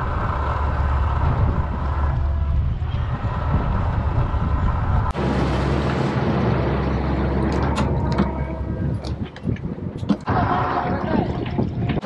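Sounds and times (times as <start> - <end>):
boat engine running: 0.0 - 12.0
wind on microphone: 0.0 - 12.0.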